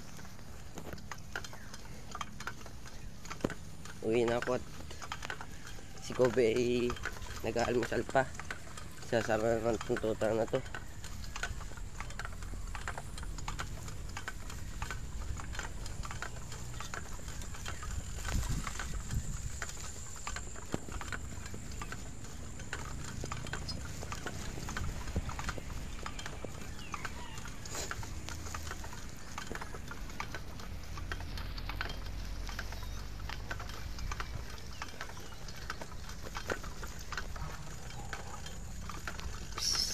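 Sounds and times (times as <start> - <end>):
bicycle clicking and rattling: 0.0 - 39.9
footsteps on grass: 0.0 - 39.9
wind rumble on microphone: 17.4 - 20.9.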